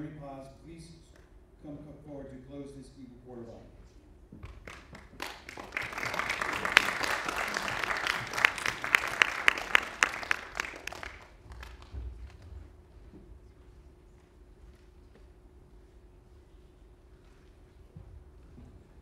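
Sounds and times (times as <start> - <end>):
loud claps: 4.4 - 12.5
audience applauding: 4.6 - 12.4.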